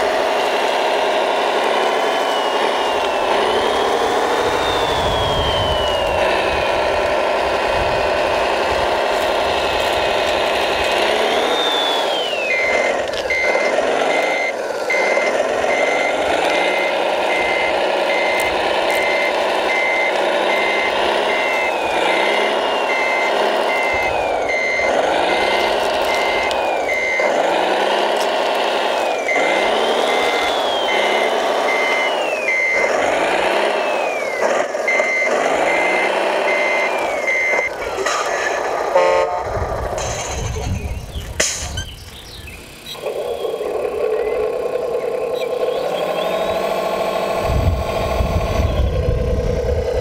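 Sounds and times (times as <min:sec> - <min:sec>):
toy truck motor whine: 0:00.0 - 0:50.0
reversing beep: 0:01.8 - 0:07.0, 0:11.2 - 0:27.5, 0:29.0 - 0:39.4, 0:42.9 - 0:49.0.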